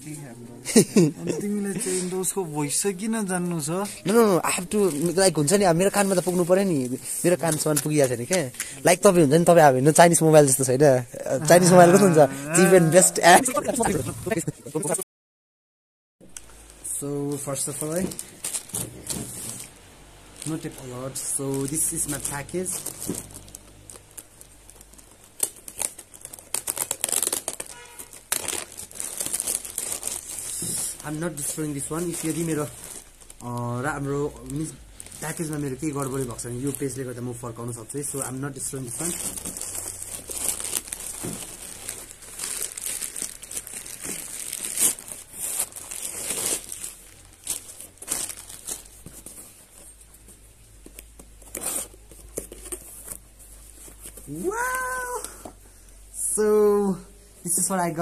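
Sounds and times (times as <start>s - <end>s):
plastic bag crinkling: 3.6s - 12.2s, 17.3s - 50.0s.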